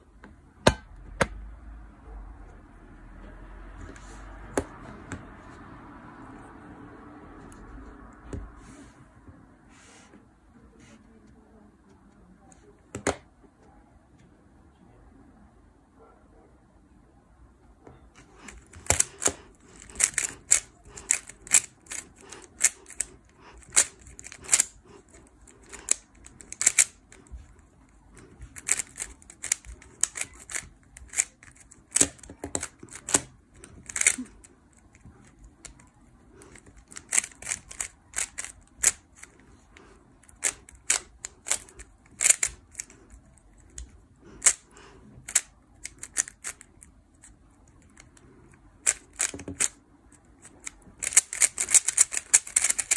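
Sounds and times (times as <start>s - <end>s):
puzzle cube plastic clicking: 18.2s - 52.9s.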